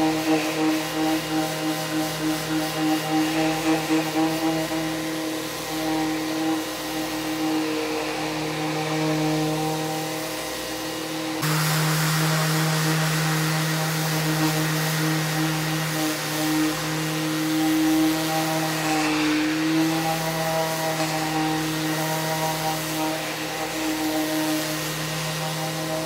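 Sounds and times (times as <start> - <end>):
dust extractor hiss: 0.0 - 26.0
orbital sander humming: 0.0 - 26.0.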